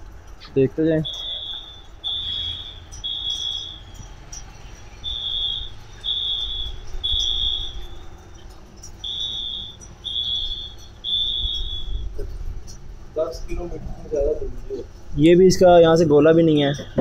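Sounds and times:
electronic beeper beeping: 0:01.0 - 0:04.2, 0:05.0 - 0:08.0, 0:09.0 - 0:12.3.

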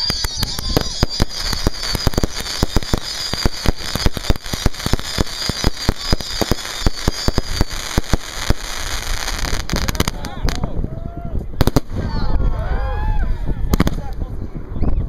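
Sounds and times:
firework launch bangs and crackling: 0:00.0 - 0:10.8, 0:11.5 - 0:12.5, 0:13.7 - 0:14.3.

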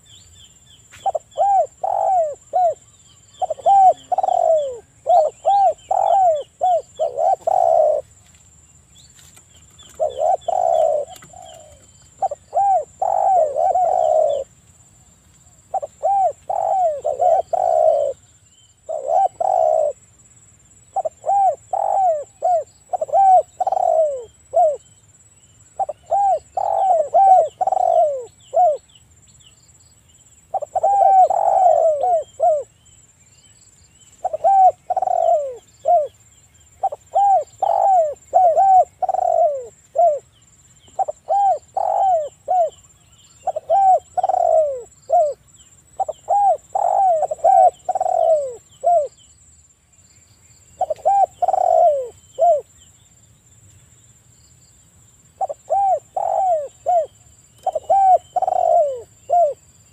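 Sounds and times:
doves cooing: 0:01.0 - 0:08.2, 0:09.8 - 0:14.5, 0:15.7 - 0:20.0, 0:20.9 - 0:24.8, 0:25.8 - 0:28.9, 0:30.5 - 0:32.7, 0:34.2 - 0:36.2, 0:36.8 - 0:40.3, 0:40.9 - 0:45.4, 0:46.0 - 0:49.1, 0:50.8 - 0:52.7, 0:55.4 - 0:59.6.

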